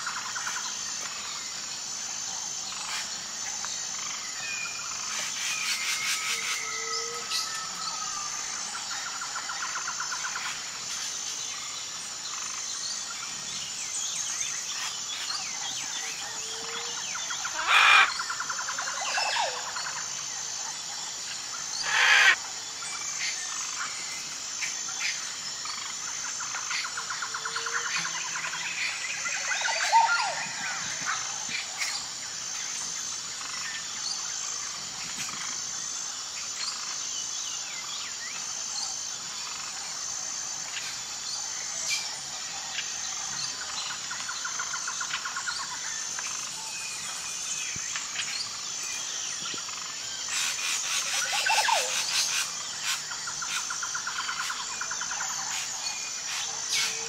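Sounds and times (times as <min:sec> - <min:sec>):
small birds twittering: 0:00.0 - 0:57.0
cockatoo screeches: 0:17.5 - 0:18.1, 0:21.8 - 0:22.4.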